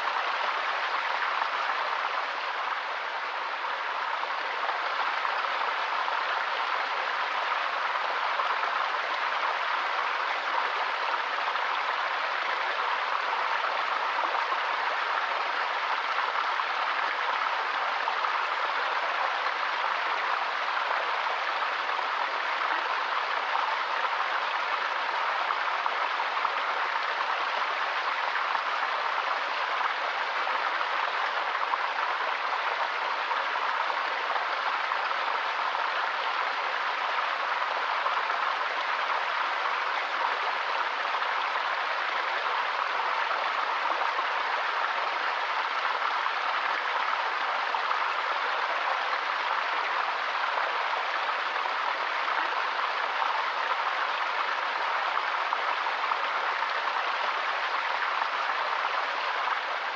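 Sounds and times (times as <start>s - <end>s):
river water rushing: 0.0s - 59.9s.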